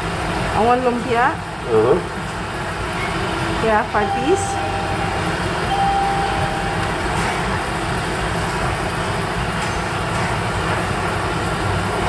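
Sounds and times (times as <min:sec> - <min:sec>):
restaurant room hum: 0:00.0 - 0:12.0.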